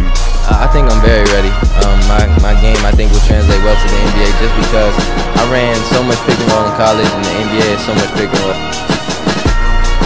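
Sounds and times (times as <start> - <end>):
deep bass note: 0.0 - 6.3
backing music with steady beat: 0.0 - 10.0.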